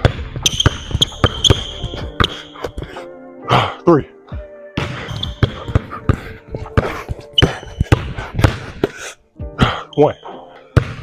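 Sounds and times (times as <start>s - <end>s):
basketball bouncing on hardwood floor: 0.0s - 2.8s, 4.8s - 8.9s, 10.8s - 11.0s.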